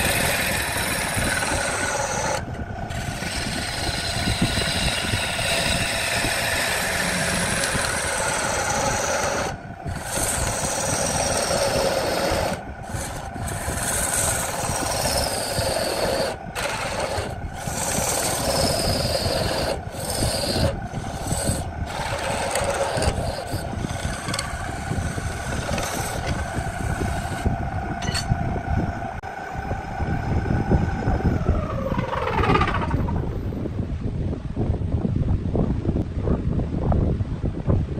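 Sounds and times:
gouge scraping wood: 0.0 - 28.3
wood lathe motor whine: 0.0 - 33.4.

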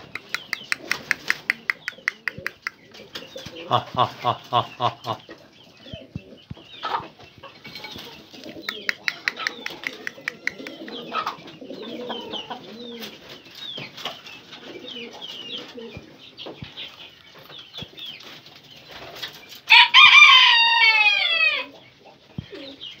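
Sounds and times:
small birds chirping: 0.0 - 19.9, 21.6 - 23.0
pigeons cooing: 0.0 - 20.2, 21.1 - 23.0
rooster crowing: 19.7 - 21.7.

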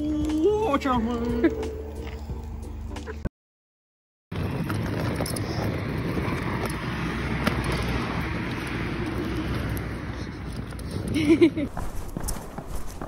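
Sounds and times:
suitcase wheels rolling on tarmac: 4.3 - 13.0.

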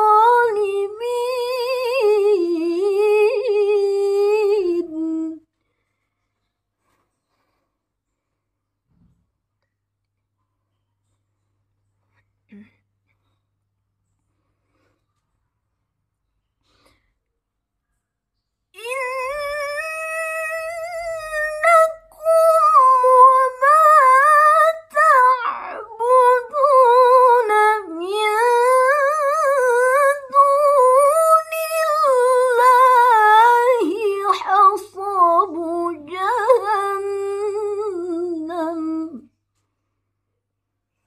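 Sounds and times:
woman reciting melodically: 0.0 - 5.5, 18.8 - 39.3.

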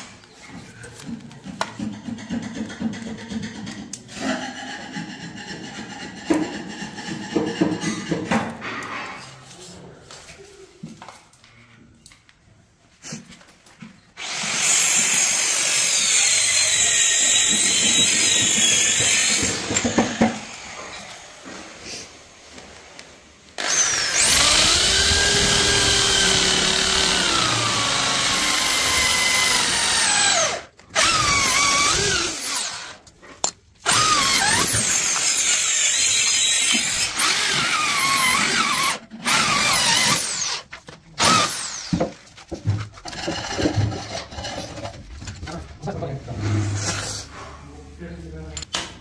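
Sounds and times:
electric drill whining: 14.2 - 21.6, 23.6 - 33.0, 33.8 - 42.0.

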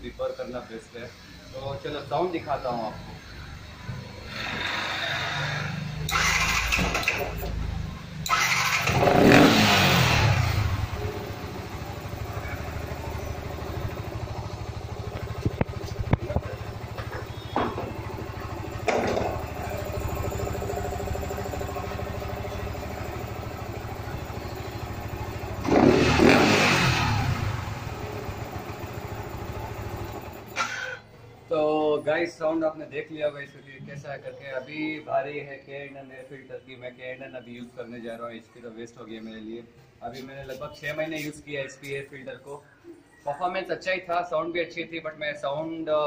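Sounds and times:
motorcycle engine idling and revving: 1.1 - 31.4.

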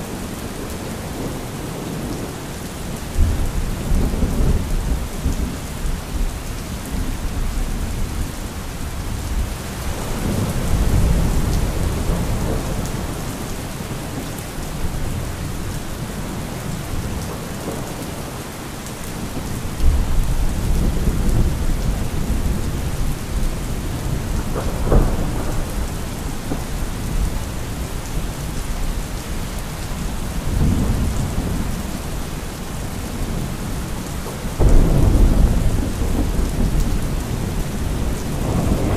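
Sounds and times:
steady rain: 0.0 - 38.9
rolling thunder: 19.2 - 32.2, 32.8 - 38.9.

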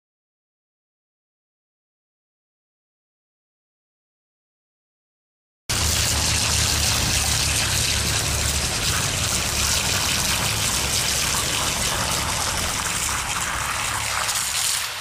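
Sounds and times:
water running over stones: 5.7 - 15.0.

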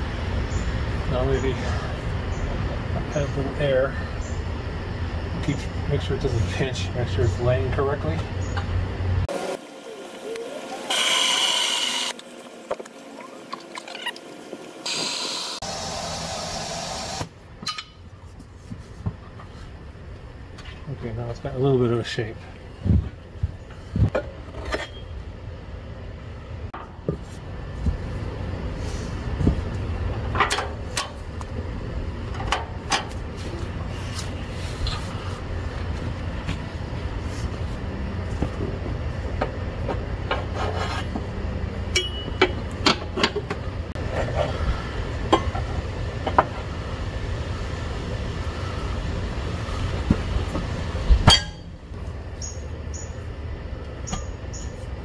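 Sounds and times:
tire irons clanking on wheel rim: 17.6 - 18.1, 41.9 - 44.6, 45.2 - 46.6, 50.1 - 51.8.

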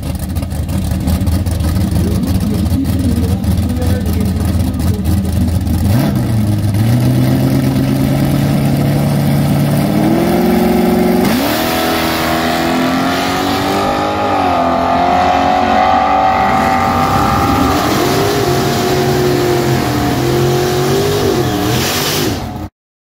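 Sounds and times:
car engine at full throttle: 0.0 - 22.7.

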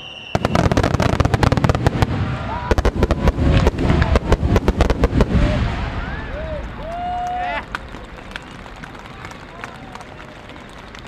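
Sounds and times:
fireworks bursting: 0.0 - 7.0.

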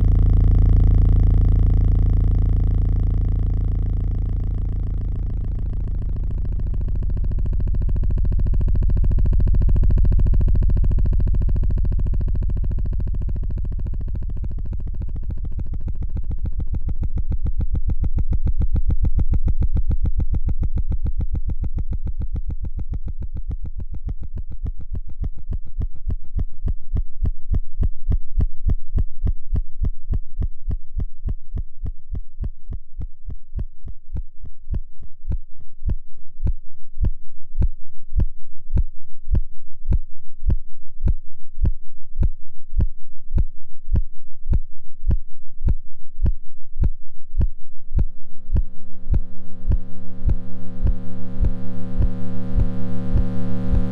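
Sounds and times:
synthesized electronic pulse: 0.0 - 25.3, 47.4 - 53.9.

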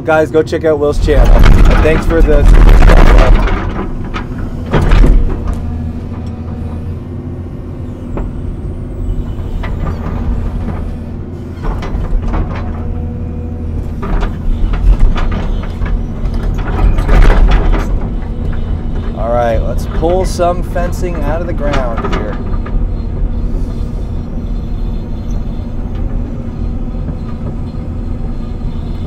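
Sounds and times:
excavator diesel engine: 0.0 - 29.0
metallic clanks and knocks: 1.0 - 6.6, 11.6 - 28.0.

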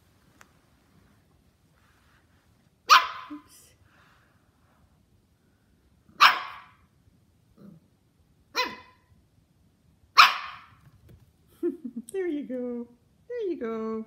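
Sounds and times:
puppy barking: 2.9 - 3.4, 6.1 - 6.8, 8.5 - 9.1, 10.2 - 10.8.

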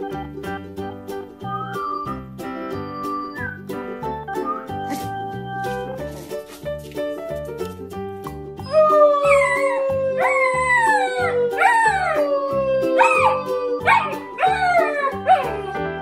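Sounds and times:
background music with beat: 0.0 - 16.0
puppy howling: 8.6 - 15.8.

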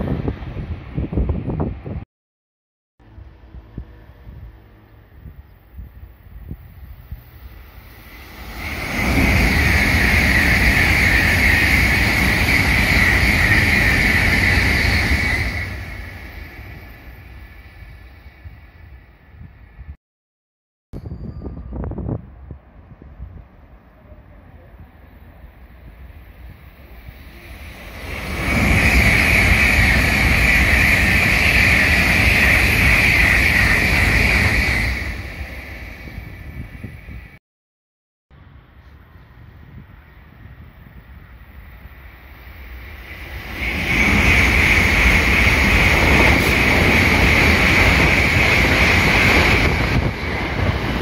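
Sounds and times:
high-speed train passing: 0.0 - 2.0, 3.0 - 20.0, 21.0 - 37.4, 38.4 - 51.0.

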